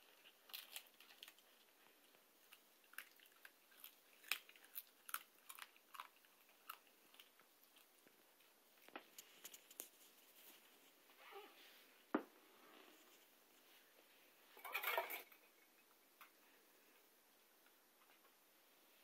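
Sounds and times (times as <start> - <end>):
puppy gnawing chew: 0.0 - 10.0.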